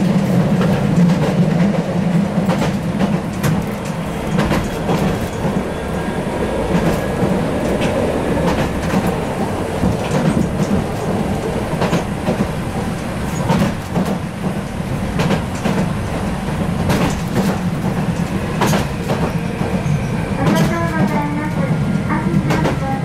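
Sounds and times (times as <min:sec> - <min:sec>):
tram running gear rumble: 0:00.0 - 0:23.0
wheels clicking over rail joints: 0:06.6 - 0:21.5.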